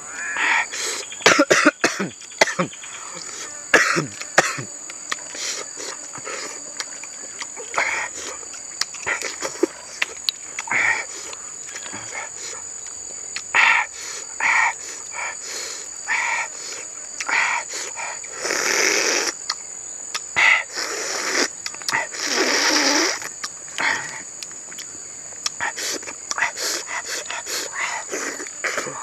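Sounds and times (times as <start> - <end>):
high insect drone: 0.0 - 29.0
man chewing and smacking: 4.2 - 13.5, 19.3 - 20.4, 21.2 - 22.1, 23.1 - 28.9
slurps: 18.3 - 19.6, 20.7 - 24.2.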